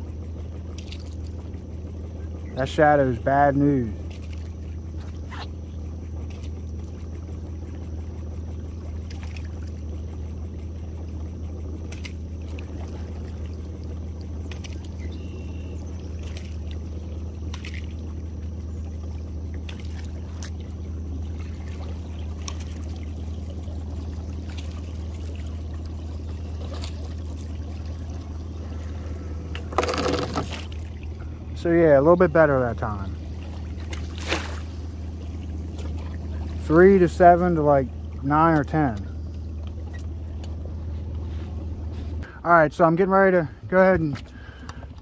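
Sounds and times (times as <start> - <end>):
light ticks and splashes: 0.0 - 43.0, 43.7 - 45.0
boat motor humming: 0.0 - 45.0
water dripping and trickling: 16.0 - 29.6.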